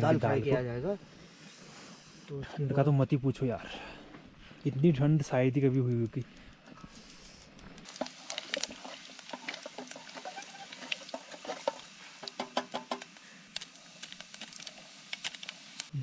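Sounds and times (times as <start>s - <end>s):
crackles and pops: 4.7s - 16.0s
frying sizzle: 7.0s - 16.0s.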